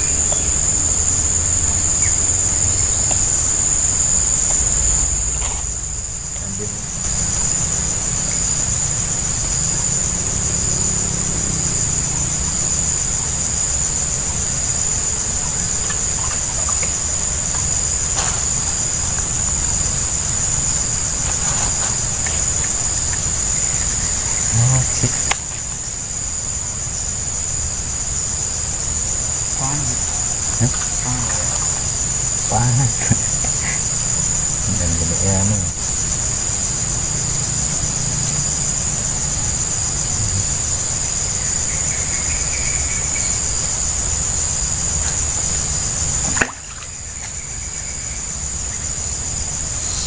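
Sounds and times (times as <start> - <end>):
insects droning: 0.0 - 50.0.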